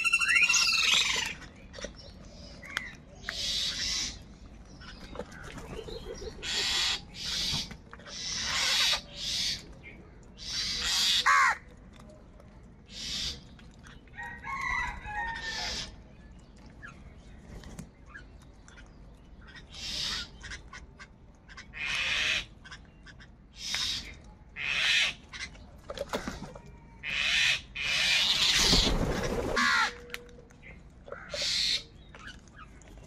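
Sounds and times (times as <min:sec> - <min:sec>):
crows cawing: 0:10.8 - 0:11.6, 0:29.5 - 0:30.0.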